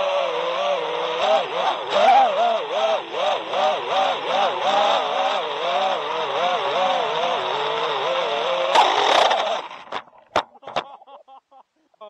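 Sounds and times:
drone motors whining: 0.0s - 10.6s.

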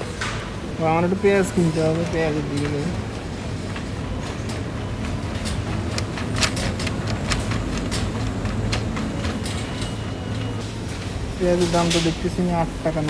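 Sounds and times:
shopping cart wheels rumbling: 0.0s - 13.0s.

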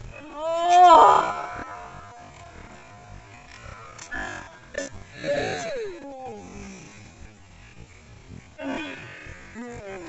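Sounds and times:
person wailing: 0.2s - 2.2s.

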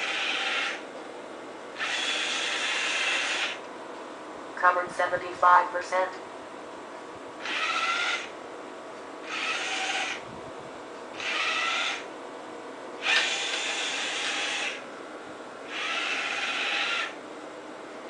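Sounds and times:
robot drive motors whirring: 0.0s - 0.8s, 1.8s - 3.6s, 7.4s - 8.3s, 9.2s - 10.2s, 11.2s - 12.1s, 13.0s - 14.8s, 15.7s - 17.2s.

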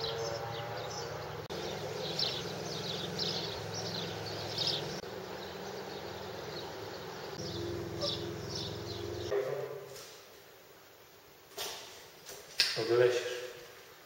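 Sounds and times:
small birds chirping: 0.0s - 9.3s
steady low hum: 0.0s - 11.5s.

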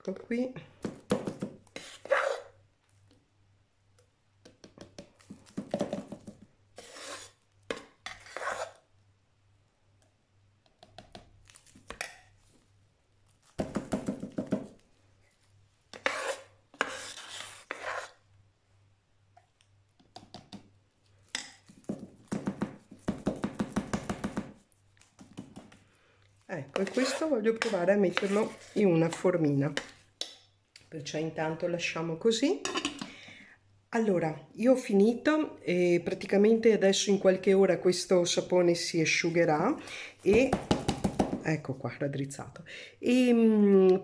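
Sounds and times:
metal spoon scraping ceramic pot: 6.8s - 8.8s, 16.0s - 18.2s, 26.7s - 30.4s.

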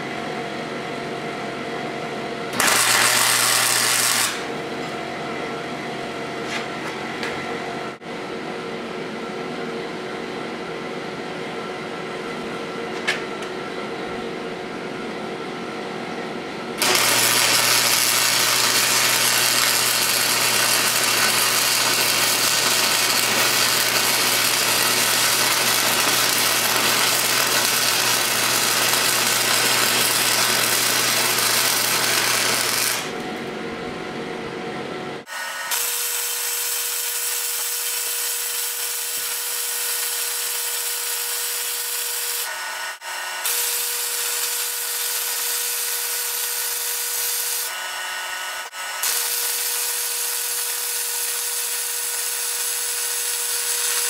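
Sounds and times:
welder hum: 2.5s - 5.0s, 16.7s - 34.0s, 35.2s - 54.0s
welding arc crackling hiss: 2.6s - 4.5s, 16.8s - 33.2s, 35.3s - 42.5s, 43.4s - 47.7s, 48.6s - 54.0s.

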